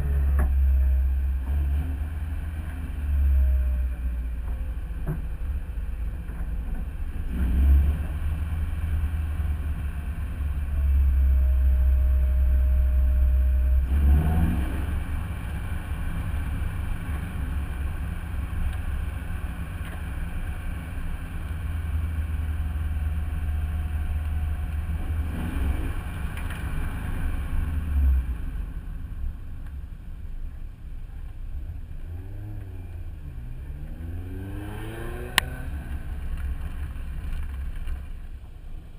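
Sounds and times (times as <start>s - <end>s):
car engine droning: 0.0s - 38.9s.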